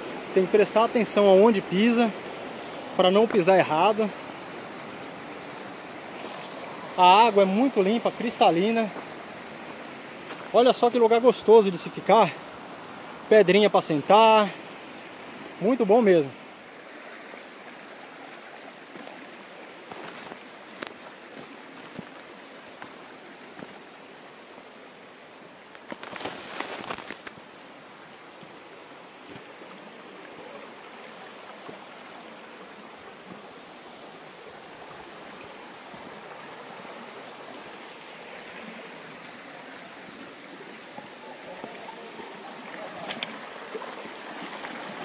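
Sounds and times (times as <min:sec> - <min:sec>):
stream flowing over stones: 0:00.0 - 0:45.0.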